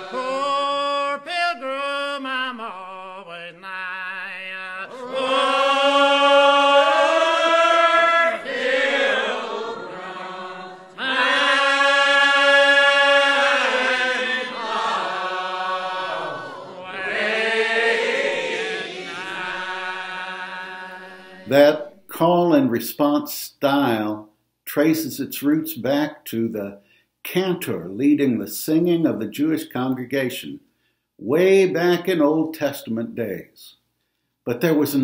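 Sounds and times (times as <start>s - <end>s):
congregation singing a hymn: 0.0s - 23.3s.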